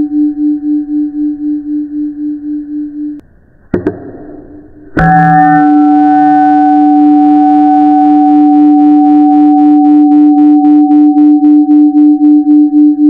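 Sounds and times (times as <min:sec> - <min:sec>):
throbbing synthesized alarm tone: 0:05.0 - 0:11.8.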